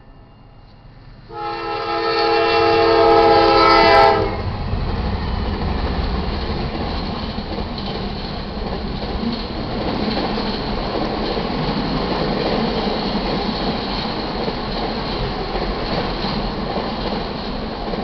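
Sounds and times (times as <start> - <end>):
train rumbling past: 0.0 - 18.0
locomotive air horn blast: 1.3 - 4.5
wheels clattering over rails: 4.8 - 18.0.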